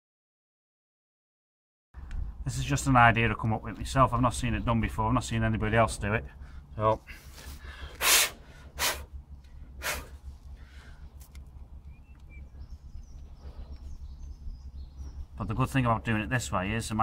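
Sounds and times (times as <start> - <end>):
low steady rumble: 2.0 - 17.0
faint bird chirps: 11.7 - 15.8.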